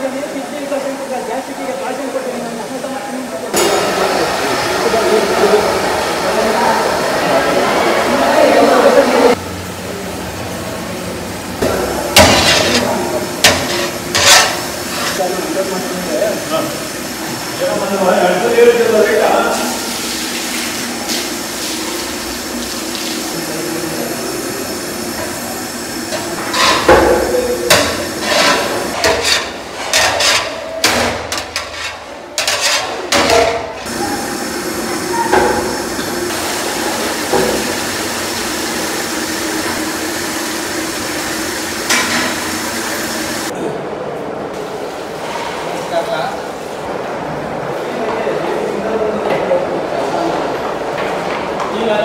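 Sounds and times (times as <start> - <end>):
kitchen hum: 0.0 - 52.0
metal pots clanking: 11.6 - 15.2, 26.1 - 33.9.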